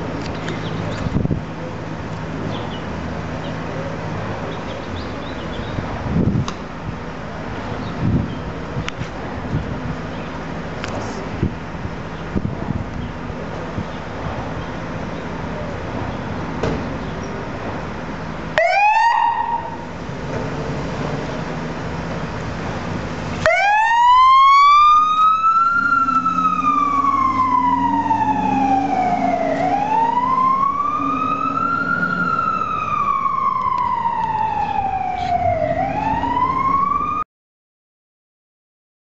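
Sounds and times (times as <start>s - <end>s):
fire engine siren wailing: 18.0s - 37.2s.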